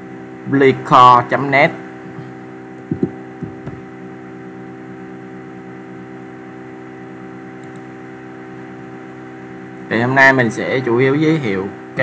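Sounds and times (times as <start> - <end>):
electrical hum: 0.0 - 12.0
soft low knocks: 2.9 - 3.9.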